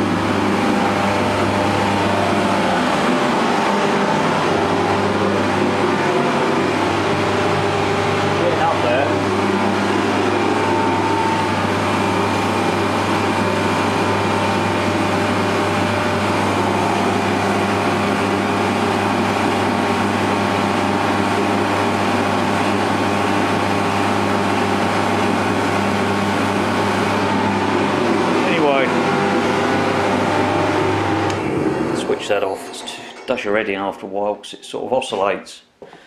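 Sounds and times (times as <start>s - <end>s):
heater fan and burner rushing: 0.0s - 34.2s.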